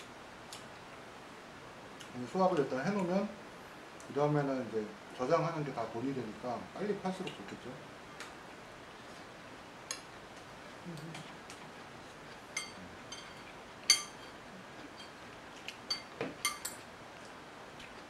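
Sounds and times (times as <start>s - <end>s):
spoons clinking on ceramic bowls: 12.5s - 14.3s, 15.9s - 16.8s.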